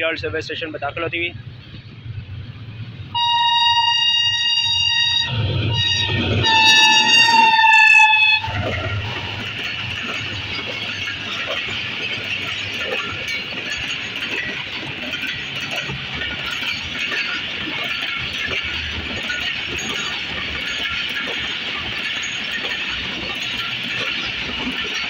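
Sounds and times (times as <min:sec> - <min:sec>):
locomotive engine rumble: 0:00.0 - 0:25.0
train coaches rolling on rails: 0:00.0 - 0:25.0
train horn blasts: 0:03.2 - 0:08.7.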